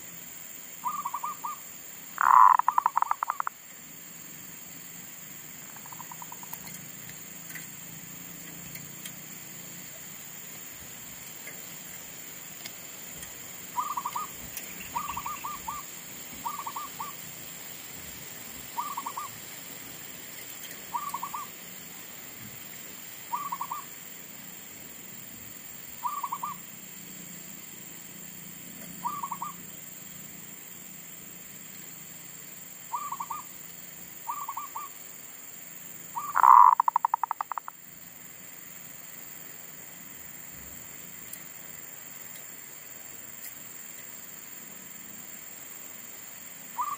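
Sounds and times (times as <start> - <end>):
dove cooing: 2.2 - 3.5, 13.8 - 17.2, 18.8 - 19.4, 20.9 - 21.5, 23.3 - 23.8, 26.0 - 26.6, 29.0 - 29.6, 36.2 - 37.7.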